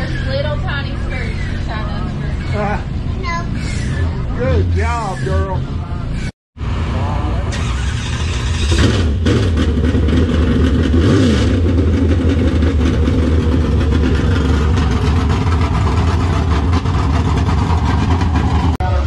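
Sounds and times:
race car engine lumpy idle: 0:11.6 - 0:19.0.

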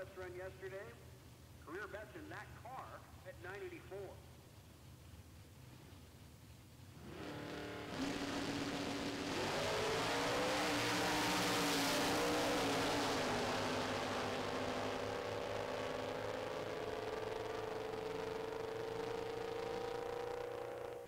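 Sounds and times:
drag car engines accelerating: 0:07.0 - 0:21.0.

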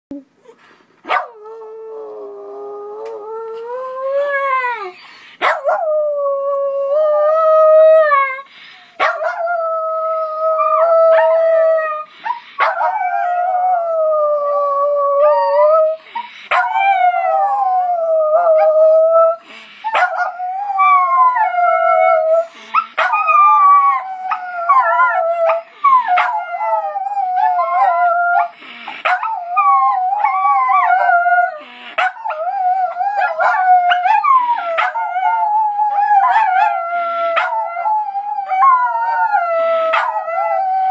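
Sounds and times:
dogs howling: 0:29.1 - 0:40.9.

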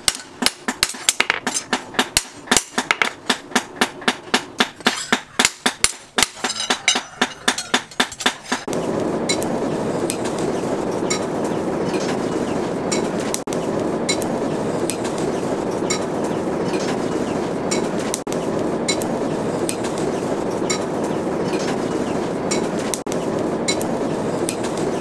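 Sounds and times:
hammer striking steel blade: 0:00.0 - 0:08.7
steady rushing noise: 0:05.6 - 0:25.0.

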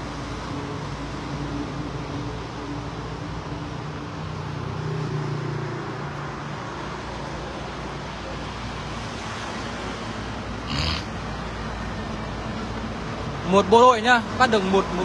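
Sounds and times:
vehicle engines passing: 0:00.0 - 0:15.0.

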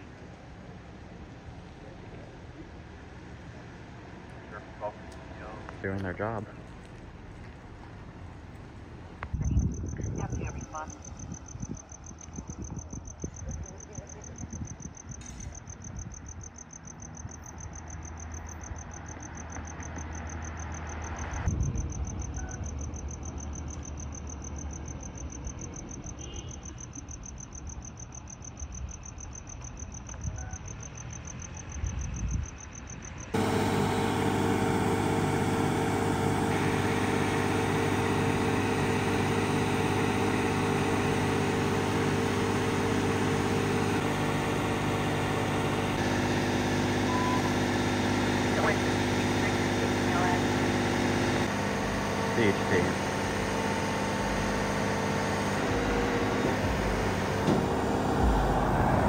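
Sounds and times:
distant engine hum: 0:00.0 - 0:21.5, 0:33.2 - 0:59.0
crickets chirping: 0:06.8 - 0:46.1
vehicle engine idling: 0:33.3 - 0:59.0.

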